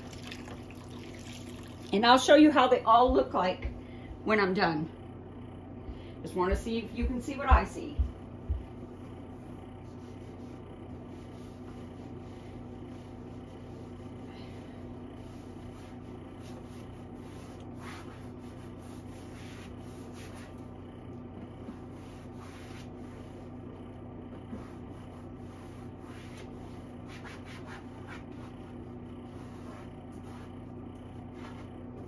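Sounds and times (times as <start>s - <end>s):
steady low hum: 0.0s - 32.0s
cloth scrubbing a drawer: 15.2s - 20.6s, 21.6s - 23.5s, 24.4s - 31.8s.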